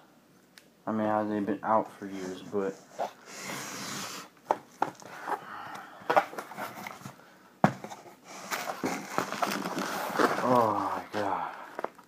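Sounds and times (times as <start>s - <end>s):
cardboard flaps rustling and scraping: 6.1s - 11.3s
sharp knocks on cardboard box: 7.6s - 7.9s.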